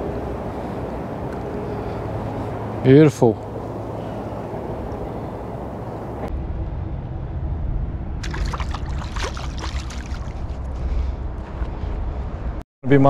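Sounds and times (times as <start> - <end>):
steady low rumble: 3.5 - 12.6
shallow water splashing: 8.2 - 10.6.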